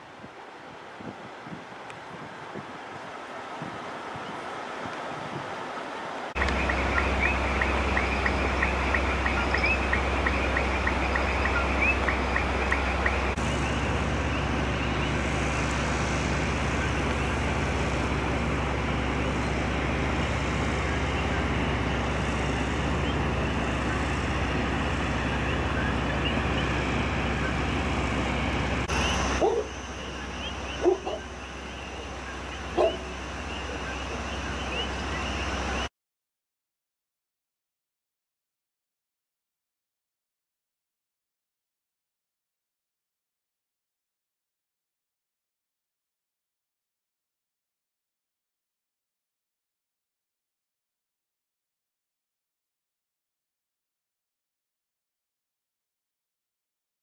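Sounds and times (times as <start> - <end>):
steady low hum: 6.4 - 35.9.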